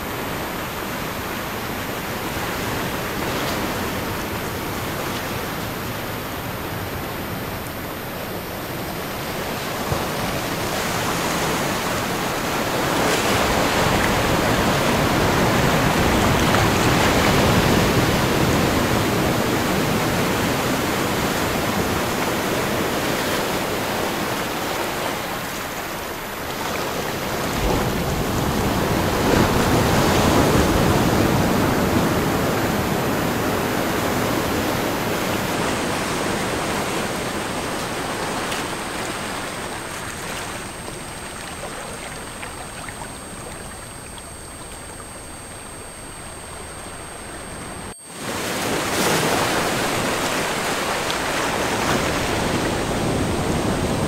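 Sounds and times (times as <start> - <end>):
ocean waves: 0.0 - 54.0
high-pitched tones: 39.6 - 51.0.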